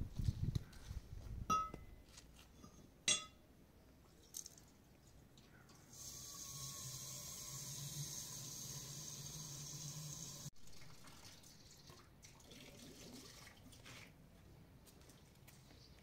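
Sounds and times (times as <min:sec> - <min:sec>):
water running into kettle: 0:05.9 - 0:13.6.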